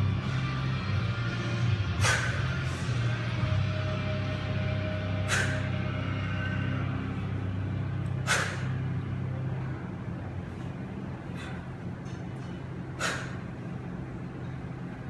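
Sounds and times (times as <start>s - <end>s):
steady low hum: 0.0s - 15.0s
woman exhaling sharply: 2.0s - 2.5s, 5.3s - 5.8s, 8.2s - 8.8s, 13.0s - 13.4s.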